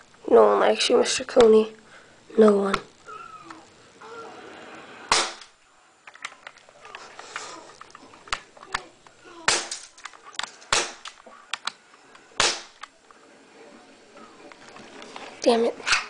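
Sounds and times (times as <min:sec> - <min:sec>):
loud cracks: 0:05.0 - 0:13.0.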